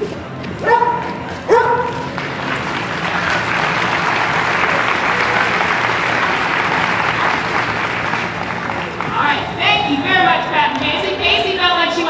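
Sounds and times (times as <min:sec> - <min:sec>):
audience applauding: 0:01.3 - 0:09.6.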